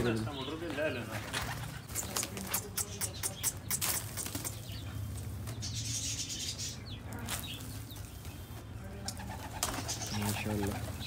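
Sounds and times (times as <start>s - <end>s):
pigeon wings flapping: 1.2s - 4.6s, 9.0s - 11.0s
sharp wing claps: 1.4s - 4.8s.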